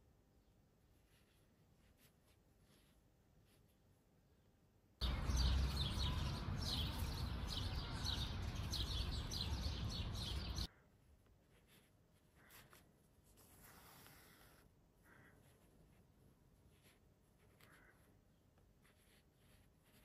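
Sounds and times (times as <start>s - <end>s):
thread drawn through cloth: 1.0s - 3.9s, 11.3s - 20.0s
birds chirping rapidly: 5.0s - 10.7s.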